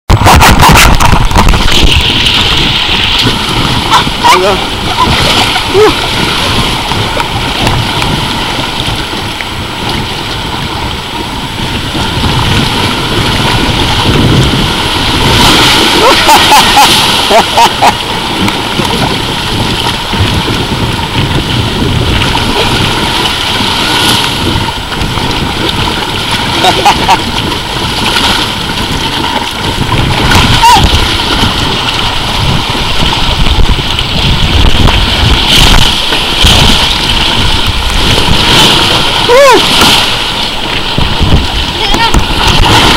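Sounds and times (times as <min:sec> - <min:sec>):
water rushing under raft: 0:00.0 - 0:42.9
splashing swishes: 0:00.1 - 0:10.7, 0:11.8 - 0:20.8
wind buffeting microphone: 0:00.1 - 0:42.9.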